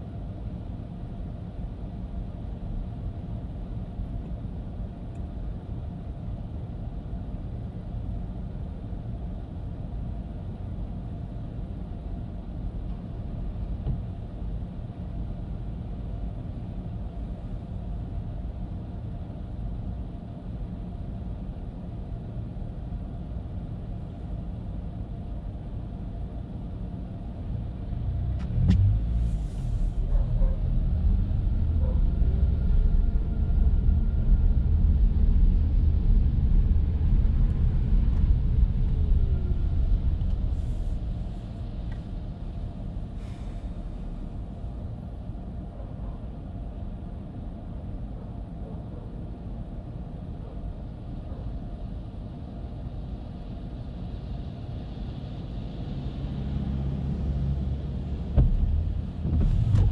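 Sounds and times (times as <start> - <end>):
car road rumble on wet street: 10.9 - 16.3, 25.7 - 45.6, 53.0 - 59.9.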